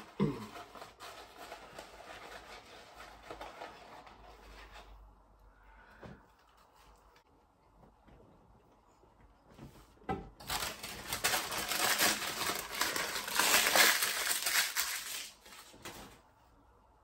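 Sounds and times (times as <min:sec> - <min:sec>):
paper snack bag crinkling: 0:10.4 - 0:16.2.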